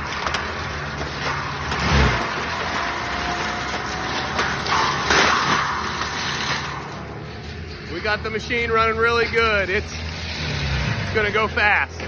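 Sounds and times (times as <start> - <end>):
diesel engine under load: 0.0 - 12.0
mulcher grinding brush: 0.0 - 12.0.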